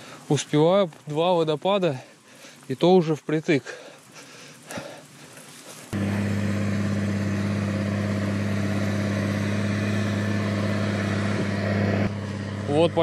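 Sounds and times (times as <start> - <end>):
low engine-like drone: 6.0 - 13.0.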